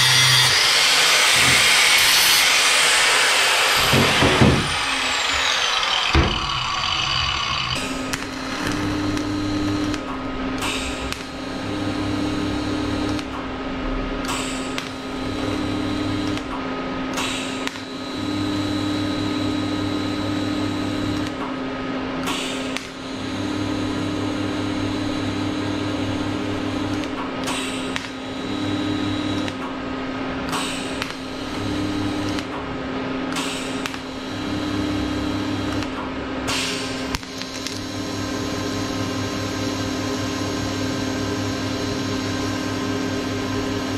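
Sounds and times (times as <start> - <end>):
welder humming: 0.0 - 13.4, 14.2 - 16.6, 22.6 - 29.6, 30.7 - 32.6, 33.3 - 43.9
welding arc buzzing: 0.0 - 13.4, 14.2 - 16.6, 17.3 - 21.4, 22.6 - 29.7, 30.7 - 32.6, 33.3 - 43.9.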